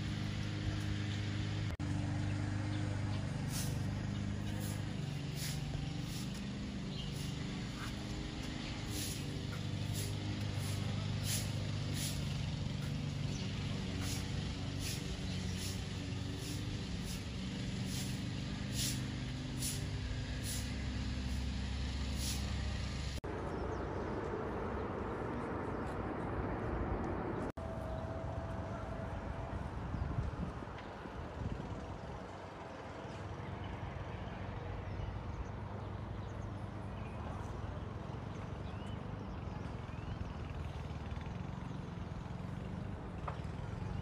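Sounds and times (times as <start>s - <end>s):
engine running: 0.0s - 44.0s
outdoor noise: 0.0s - 44.0s
short high hissing: 3.4s - 6.4s, 8.8s - 12.3s, 14.0s - 23.1s
short hiss: 3.5s - 3.8s, 8.9s - 9.3s, 9.9s - 12.3s, 17.8s - 21.4s, 22.1s - 22.7s.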